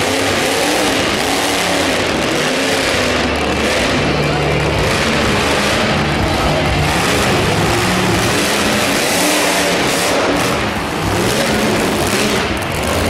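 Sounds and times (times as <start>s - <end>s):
monster truck engine revving: 0.0s - 13.0s.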